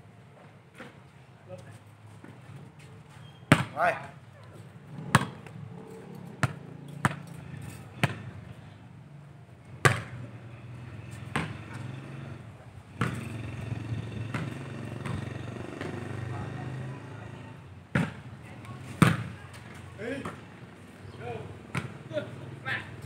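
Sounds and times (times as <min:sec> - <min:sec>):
football kicked and bouncing: 0:03.2 - 0:04.1, 0:05.0 - 0:05.6, 0:06.4 - 0:07.3, 0:07.9 - 0:08.3, 0:09.8 - 0:10.2, 0:11.1 - 0:11.6, 0:13.0 - 0:13.3, 0:14.3 - 0:15.2, 0:17.9 - 0:18.3, 0:19.0 - 0:19.3, 0:21.7 - 0:22.1.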